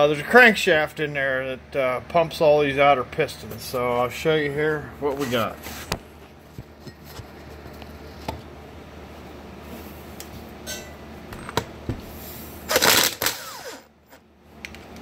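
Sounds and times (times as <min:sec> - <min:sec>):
motor whine winding down: 0:12.7 - 0:13.9
power tool burst: 0:12.7 - 0:13.9.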